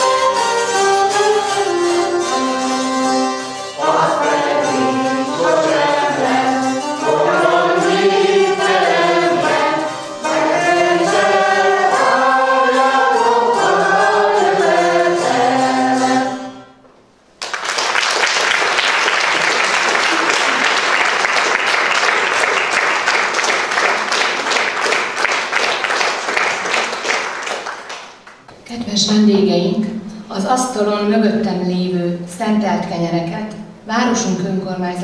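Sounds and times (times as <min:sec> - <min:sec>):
zithers playing: 0:00.0 - 0:16.4
group singing folk song: 0:00.0 - 0:16.7
woodwind playing: 0:00.0 - 0:16.8
applause: 0:17.4 - 0:28.5.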